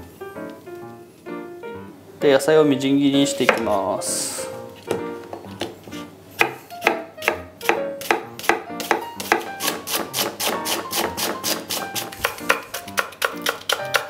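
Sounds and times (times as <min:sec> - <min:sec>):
knife chopping on wooden board: 0:06.4 - 0:14.0.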